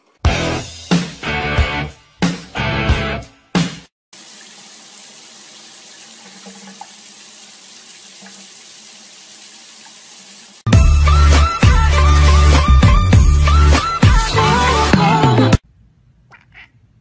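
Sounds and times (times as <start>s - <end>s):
tap water running into bathtub: 4.1s - 10.7s.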